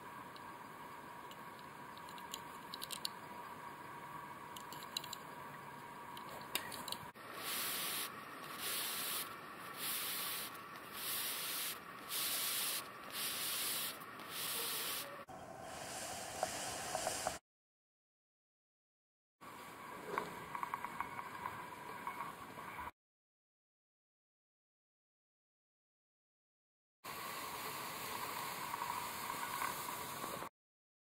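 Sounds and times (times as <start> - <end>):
faint hiss: 7.2 - 17.4, 27.1 - 30.5
hissy rubbing noise: 7.2 - 17.4.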